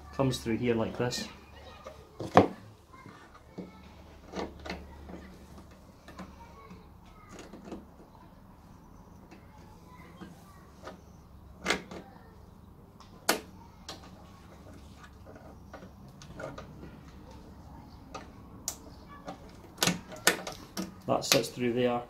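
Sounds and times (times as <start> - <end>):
metal clicks and knocks: 18.0 - 21.5.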